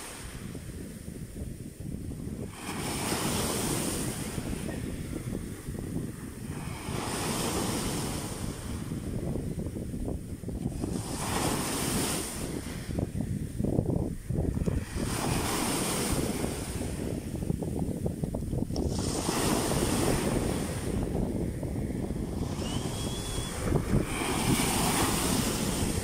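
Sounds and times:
waves washing over stones: 0:00.0 - 0:00.4, 0:02.4 - 0:04.7, 0:06.5 - 0:08.7, 0:10.7 - 0:12.7, 0:14.5 - 0:17.0, 0:18.8 - 0:20.9, 0:22.5 - 0:26.0
wind rumbling on microphone: 0:00.0 - 0:26.0.

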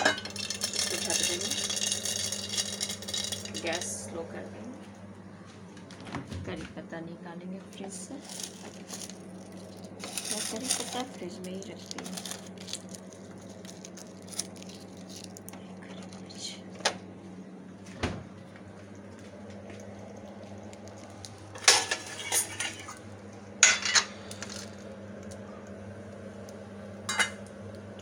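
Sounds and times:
steel utensils clattering: 0:00.0 - 0:04.0, 0:08.2 - 0:09.2, 0:10.0 - 0:11.3, 0:21.6 - 0:23.0, 0:23.6 - 0:24.6, 0:27.1 - 0:27.4
steady low hum: 0:00.0 - 0:28.0.

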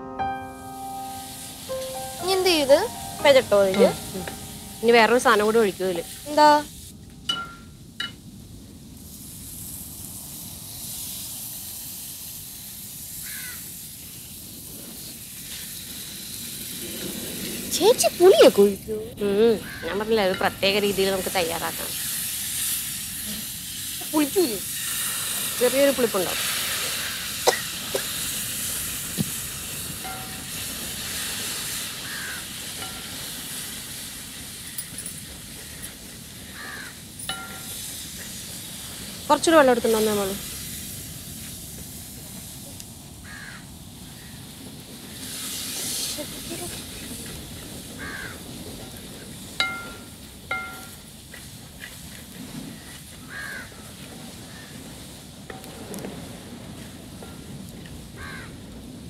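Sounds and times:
hot oil sizzling: 0:00.0 - 0:59.0
falling bird call: 0:32.0 - 0:32.6.

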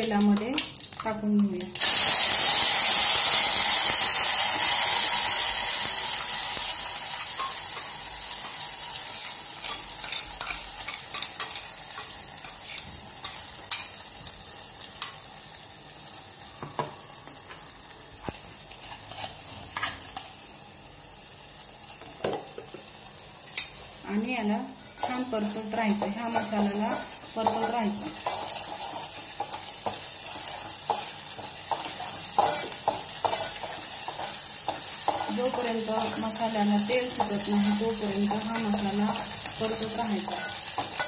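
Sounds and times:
paste sizzling in hot oil: 0:00.0 - 0:41.0
spoon scraping a pot: 0:38.3 - 0:41.0.

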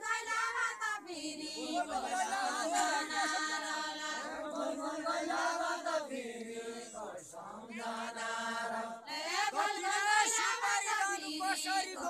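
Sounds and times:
men singing unaccompanied: 0:00.0 - 0:12.0.

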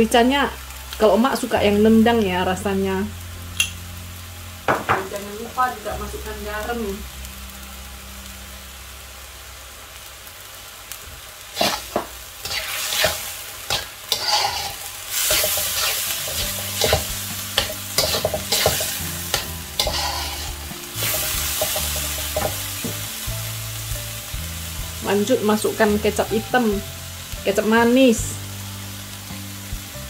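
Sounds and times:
food sizzling in a wok: 0:00.0 - 0:30.0
metal spatula scraping a pan: 0:11.6 - 0:23.0.

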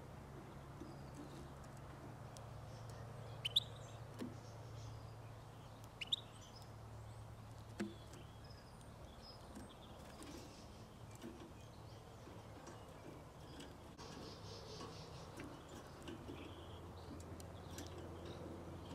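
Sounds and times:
low background hum: 0:00.0 - 0:18.9
goldfinch calls: 0:02.8 - 0:05.0, 0:05.9 - 0:06.6, 0:14.0 - 0:17.0.

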